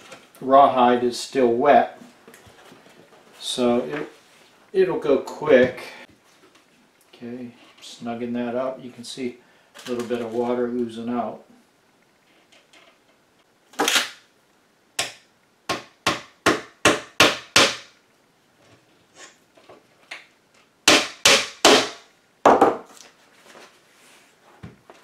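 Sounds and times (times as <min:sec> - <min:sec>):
hammer tapping tacks into wood: 0:15.0 - 0:17.9.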